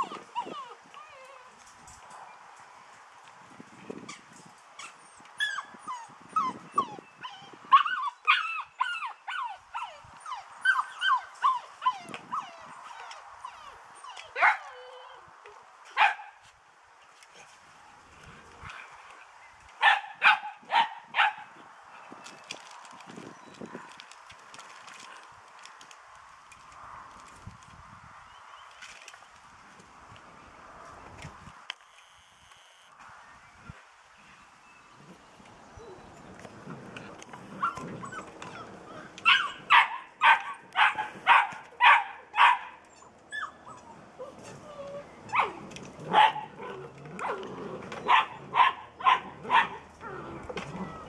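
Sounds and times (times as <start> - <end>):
puppy yipping: 0.0 - 1.4, 37.6 - 46.5
puppy barking: 14.3 - 14.7, 16.0 - 16.4, 19.8 - 21.5, 39.2 - 42.8, 45.3 - 47.4, 48.0 - 49.8.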